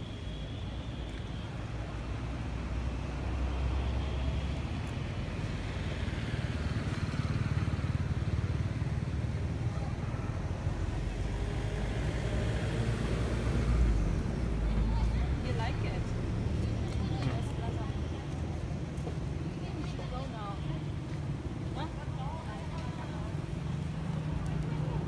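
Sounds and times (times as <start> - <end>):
vehicle passing by: 2.8 - 17.6.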